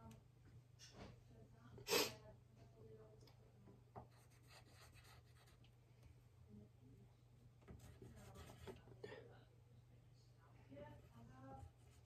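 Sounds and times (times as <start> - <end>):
low steady hum: 0.0 - 12.0
pen scratching on paper: 4.0 - 5.6, 7.7 - 8.9.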